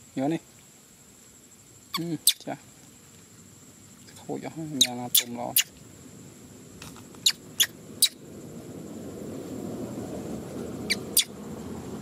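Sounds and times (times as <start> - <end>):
baby monkey squeaking: 1.9 - 2.4, 4.8 - 5.7, 7.2 - 8.2, 10.9 - 11.3.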